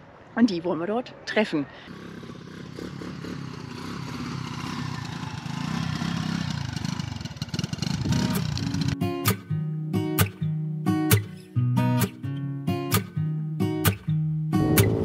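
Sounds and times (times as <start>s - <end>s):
motorcycle engine running: 1.9s - 9.0s, 14.6s - 15.0s.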